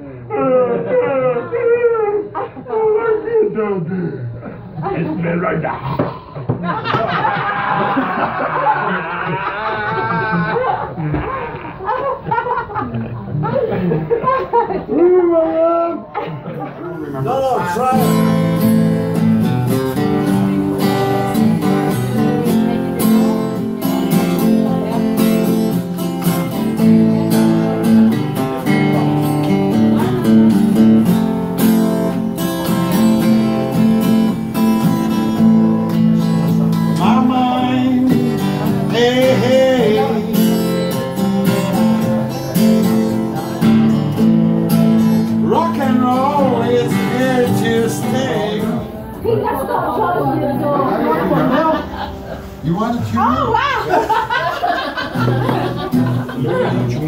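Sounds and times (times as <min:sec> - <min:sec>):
acoustic guitar strumming: 0:17.3 - 0:49.2, 0:50.6 - 0:57.0.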